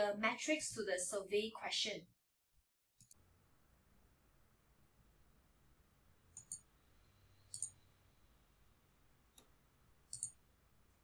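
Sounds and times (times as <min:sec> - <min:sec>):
computer mouse clicks: 0:03.0 - 0:03.2, 0:06.3 - 0:06.7, 0:07.5 - 0:07.8, 0:09.3 - 0:09.5, 0:10.1 - 0:10.4
faint low hum: 0:03.1 - 0:11.0.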